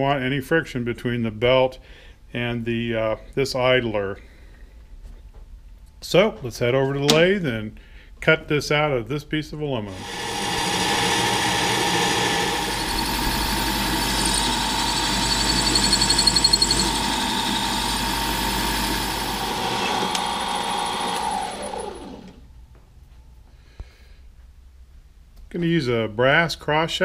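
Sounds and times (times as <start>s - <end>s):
lathe spinning down: 9.9s - 22.4s
metal lathe motor whining: 9.9s - 22.4s.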